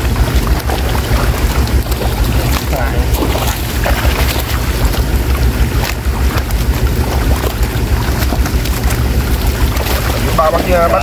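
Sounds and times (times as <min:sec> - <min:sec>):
fish splashing in water: 0:00.0 - 0:11.0
steady low rumble: 0:00.0 - 0:11.0.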